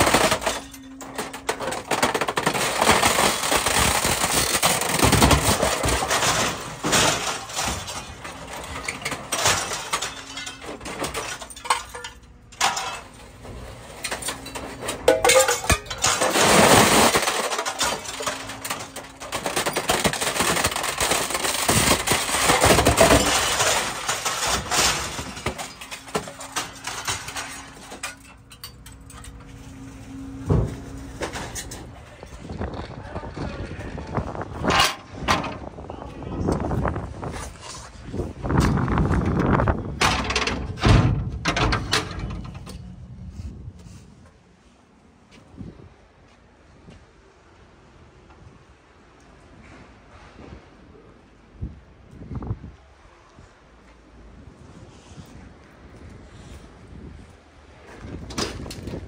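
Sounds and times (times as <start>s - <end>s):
sheet metal crumpling and clanking: 0.0s - 44.0s, 57.8s - 59.0s.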